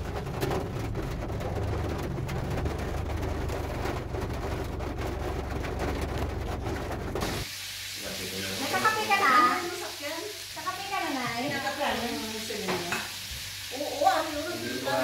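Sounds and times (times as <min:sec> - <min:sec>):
car interior rumble: 0:00.0 - 0:07.4
raindrops striking car roof: 0:00.0 - 0:07.5
rain hiss: 0:00.0 - 0:15.0.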